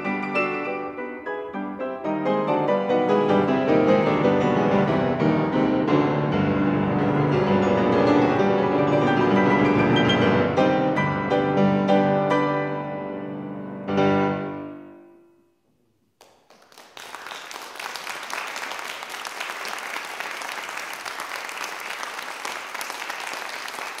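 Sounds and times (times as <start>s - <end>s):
piano chord ringing: 7.6s - 15.8s
audience applause: 16.2s - 24.0s.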